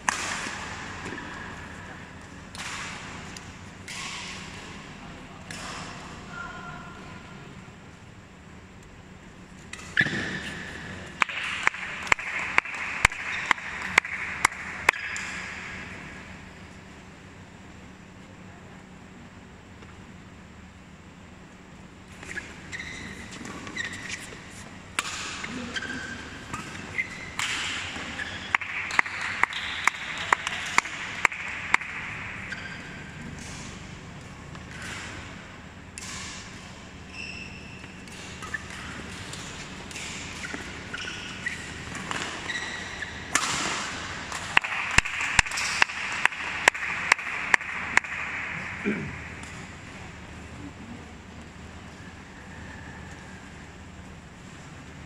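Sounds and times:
rackets hitting shuttlecock: 0.0s - 6.3s, 9.6s - 16.4s, 22.1s - 37.0s, 37.8s - 50.2s
shoes squeaking on court: 22.1s - 24.8s, 25.4s - 30.7s, 32.4s - 35.3s, 36.4s - 43.8s.

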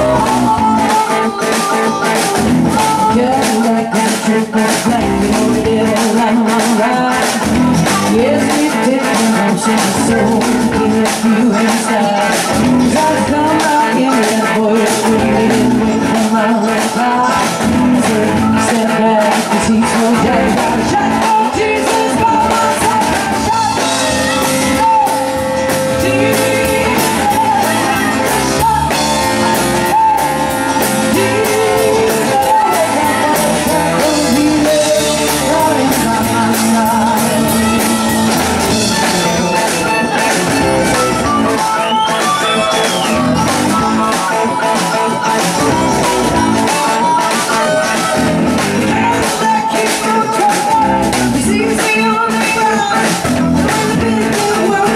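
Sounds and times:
bass guitar: 0.0s - 54.9s
electric guitars: 0.0s - 54.9s
steady drum beat: 0.0s - 54.9s
woman singing: 0.0s - 54.9s.

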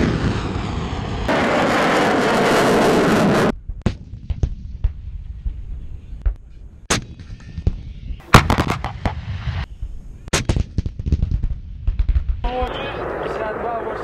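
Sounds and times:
howitzers firing: 8.2s - 9.5s.

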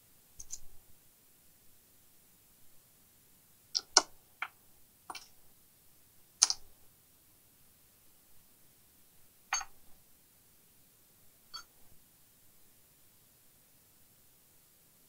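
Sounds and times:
tool clicking on circuit board: 6.4s - 6.6s.

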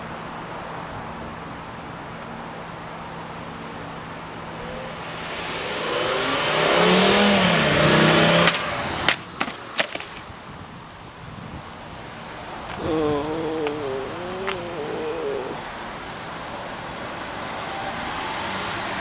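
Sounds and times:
car engine accelerating: 4.3s - 9.0s
box hitting asphalt: 8.4s - 10.3s.

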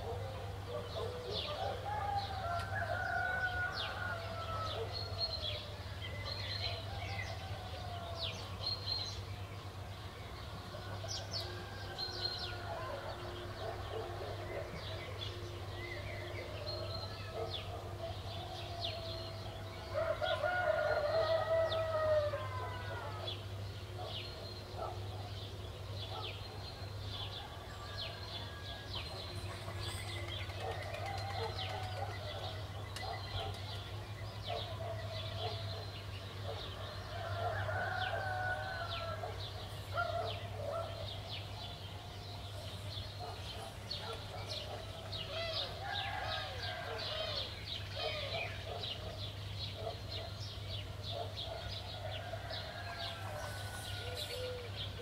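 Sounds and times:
songbirds chirping: 0.0s - 55.0s
rooster crowing: 1.8s - 4.9s, 18.5s - 23.3s, 36.8s - 39.4s, 44.9s - 47.6s, 51.9s - 54.8s.

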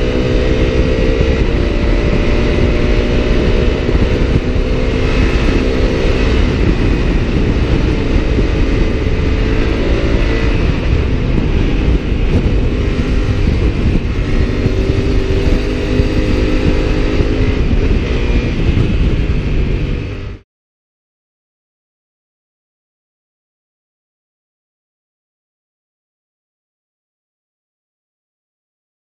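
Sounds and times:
motorcycle engine at high speed: 0.0s - 20.4s
wind buffeting microphone: 0.0s - 20.4s.

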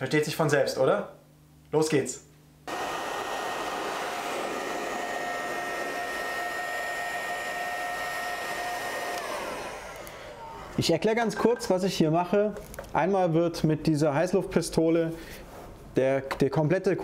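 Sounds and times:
heat gun blowing with fan whine: 2.7s - 10.8s.

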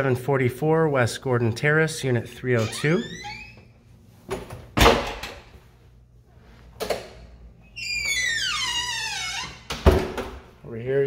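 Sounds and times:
door heavy thud: 9.7s - 10.4s.

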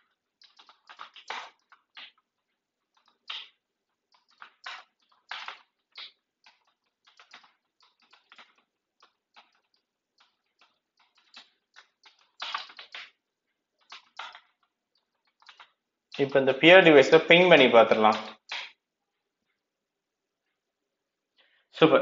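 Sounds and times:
typing on keyboard: 0.0s - 13.2s, 13.8s - 16.6s.

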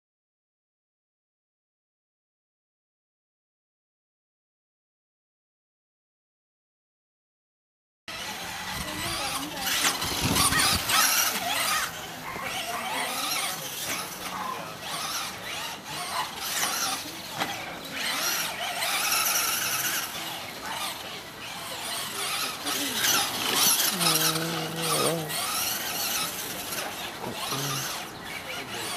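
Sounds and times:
toy truck motor whining: 8.1s - 28.9s
tyres scrabbling on dirt: 8.2s - 28.9s.

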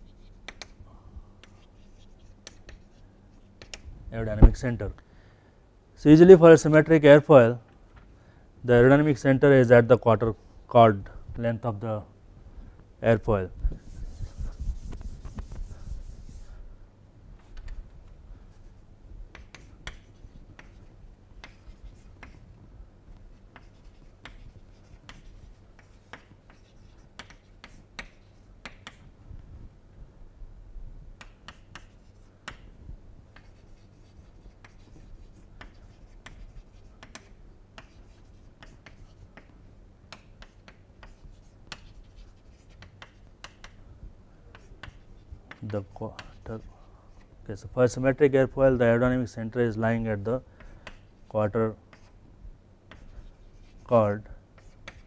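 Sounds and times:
low steady hum: 0.0s - 55.0s
chalk tapping and scratching on blackboard: 0.1s - 0.8s, 1.4s - 3.8s, 13.8s - 16.5s, 18.6s - 22.4s, 23.2s - 29.1s, 31.2s - 43.8s, 44.5s - 47.3s, 50.6s - 51.3s, 51.9s - 52.2s, 52.9s - 55.0s.

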